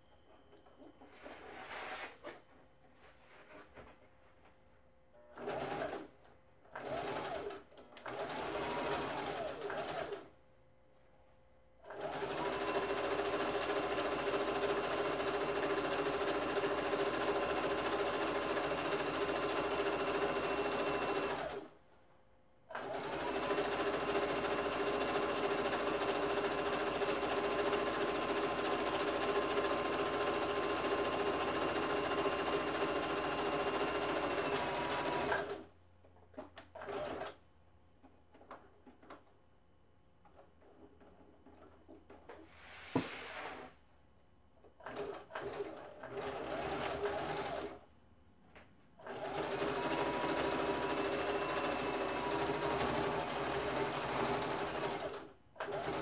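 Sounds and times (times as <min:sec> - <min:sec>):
sewing machine stitching: 0:05.3 - 0:10.3, 0:11.9 - 0:21.7, 0:22.7 - 0:35.7, 0:36.3 - 0:37.4, 0:44.8 - 0:47.8, 0:49.0 - 0:56.0.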